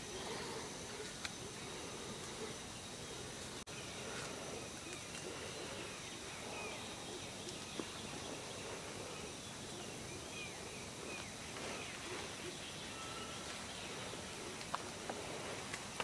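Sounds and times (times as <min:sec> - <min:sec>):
insect drone: 0:00.0 - 0:16.0
bird chirps: 0:02.4 - 0:14.7.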